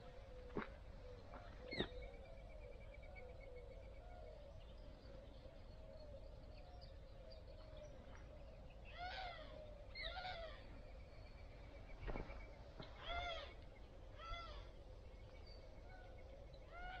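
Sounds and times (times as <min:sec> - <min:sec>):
soft chirping calls: 0:00.0 - 0:17.0
rising and falling animal calls: 0:09.0 - 0:10.7.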